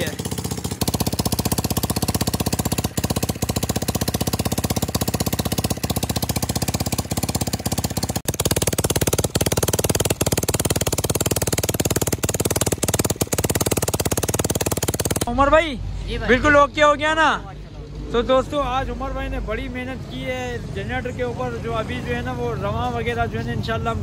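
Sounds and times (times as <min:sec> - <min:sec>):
small generator engine running: 0:00.0 - 0:15.5.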